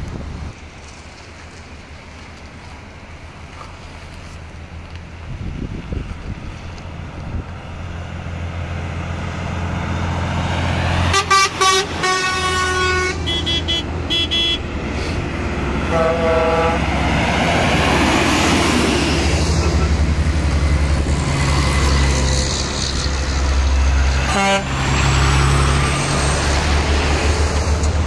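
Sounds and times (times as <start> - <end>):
heavy truck engines passing: 0.0 - 28.0
truck horn toots: 11.1 - 14.7, 15.8 - 16.9, 24.2 - 24.8.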